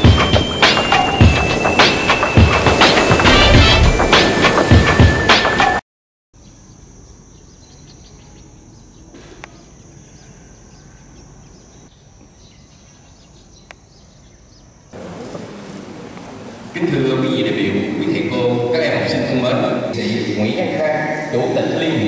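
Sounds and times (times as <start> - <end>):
high-pitched hiss: 0.0 - 5.6
music: 0.0 - 5.8
large hall room noise: 15.0 - 22.0.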